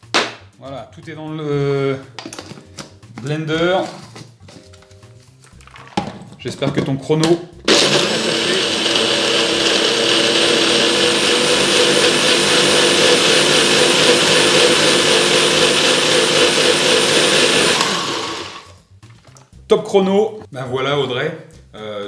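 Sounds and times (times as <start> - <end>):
blender motor running: 7.7 - 18.8.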